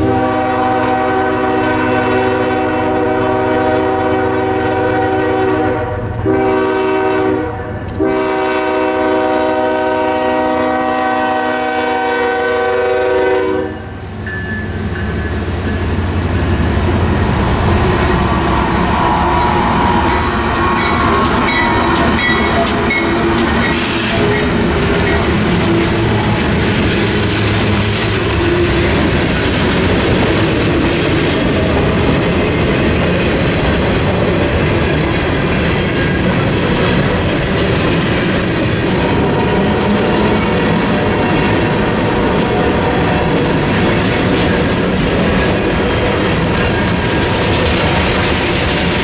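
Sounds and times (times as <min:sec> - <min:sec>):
locomotive air horn: 0:00.0 - 0:14.0
locomotive engine rumble: 0:12.8 - 0:49.0
wheels clacking over rail joints: 0:14.2 - 0:49.0.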